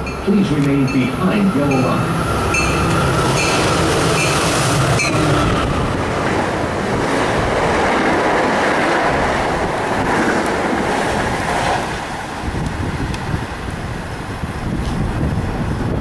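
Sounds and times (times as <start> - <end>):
bell ringing: 0.0 - 5.2
train passing at speed: 0.0 - 16.0.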